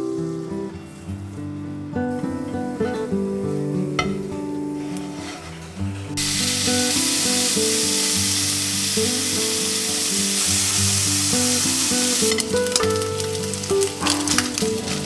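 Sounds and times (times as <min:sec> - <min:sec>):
soft acoustic guitar music: 0:00.0 - 0:15.0
bacon sizzling in frying pan: 0:06.2 - 0:15.0.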